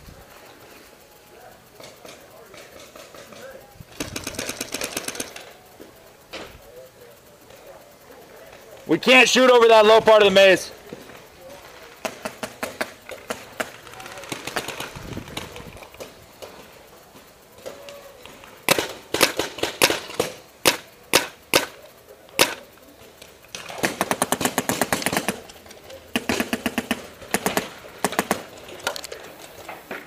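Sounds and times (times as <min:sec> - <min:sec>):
paintball marker shots: 0:18.7 - 0:21.8.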